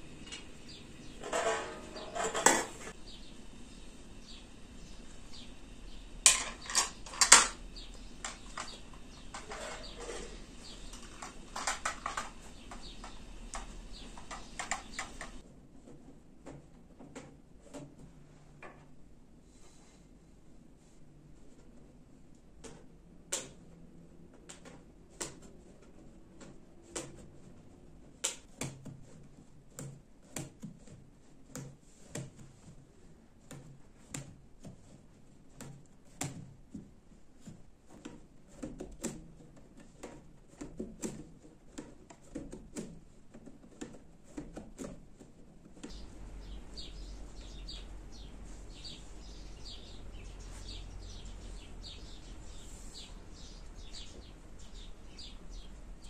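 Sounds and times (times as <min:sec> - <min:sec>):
birds chirping: 0:00.0 - 0:15.4, 0:45.8 - 0:56.0
steady low hum: 0:00.0 - 0:15.4, 0:45.9 - 0:56.0.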